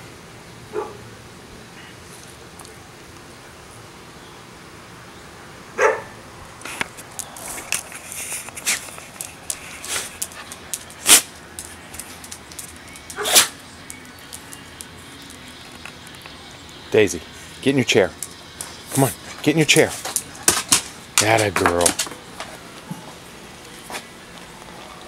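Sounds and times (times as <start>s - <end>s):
dog barking: 0.7s - 1.0s, 5.8s - 6.2s, 13.2s - 13.5s
claws clicking on concrete: 6.6s - 16.8s, 18.0s - 22.6s.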